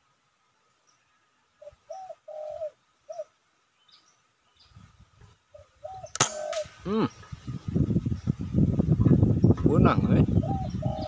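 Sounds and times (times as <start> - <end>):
doves cooing: 1.6 - 3.4, 5.5 - 7.2, 10.3 - 11.0
rifle shot: 6.1 - 6.8.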